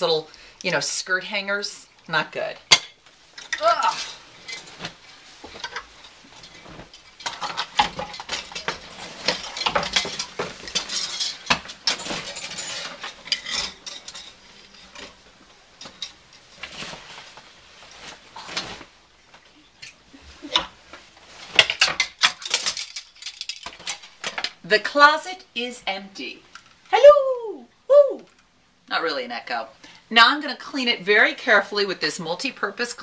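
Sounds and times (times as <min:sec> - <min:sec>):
coat hangers clinking: 0:02.7 - 0:18.8.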